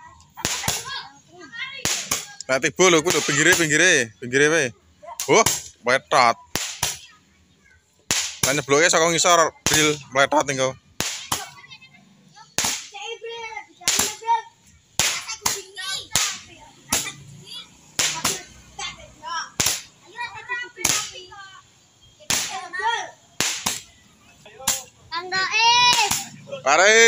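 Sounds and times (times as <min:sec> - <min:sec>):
firework rockets bursting: 0:00.4 - 0:01.0, 0:01.8 - 0:02.4, 0:06.5 - 0:07.2, 0:08.1 - 0:08.7, 0:11.0 - 0:11.6, 0:12.5 - 0:13.1, 0:13.8 - 0:14.3, 0:15.0 - 0:18.6, 0:19.5 - 0:20.1, 0:20.8 - 0:21.3, 0:22.0 - 0:24.9, 0:25.8 - 0:26.4.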